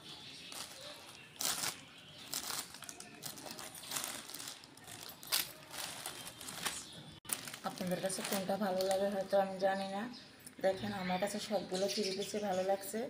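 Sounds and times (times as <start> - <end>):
plastic wrapping crinkling: 0.1 - 9.4.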